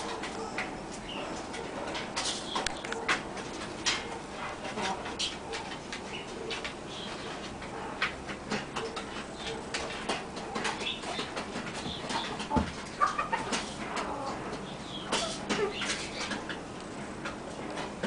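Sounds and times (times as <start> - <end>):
hen clucking softly: 12.1 - 14.4.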